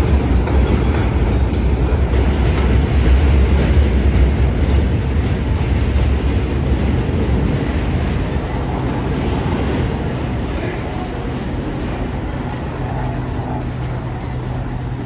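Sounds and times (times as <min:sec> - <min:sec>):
subway train rumbling on elevated track: 0:00.0 - 0:15.0
high wheel squeals: 0:07.5 - 0:12.0.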